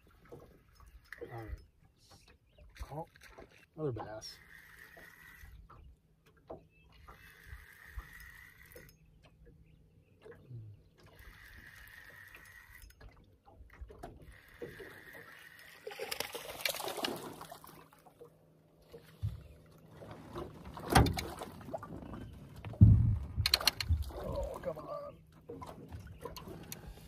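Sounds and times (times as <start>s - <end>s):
fish splashing in water: 14.0s - 18.3s.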